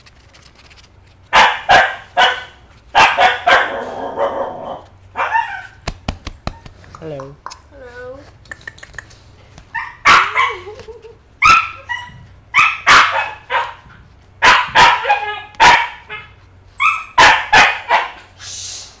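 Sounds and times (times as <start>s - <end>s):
puppy yapping: 1.3s - 5.8s, 9.7s - 18.3s.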